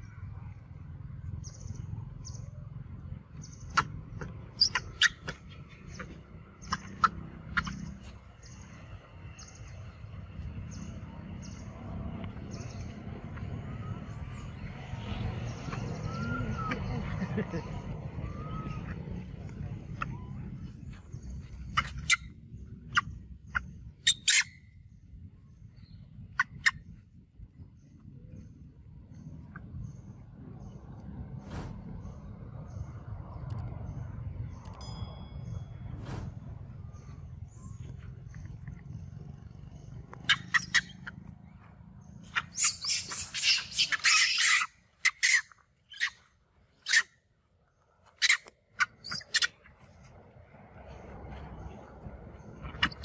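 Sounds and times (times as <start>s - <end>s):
monkeys screaming: 3.7s - 8.0s, 15.6s - 19.2s, 21.7s - 22.3s, 22.9s - 24.6s, 40.2s - 41.2s, 42.2s - 46.2s, 46.8s - 47.1s, 48.2s - 49.6s.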